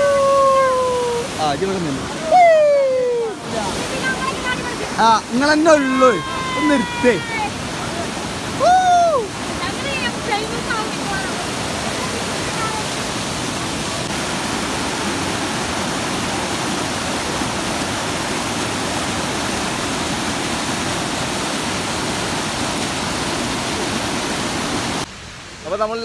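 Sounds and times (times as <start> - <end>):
whitewater rushing over rocks: 0.0 - 26.0.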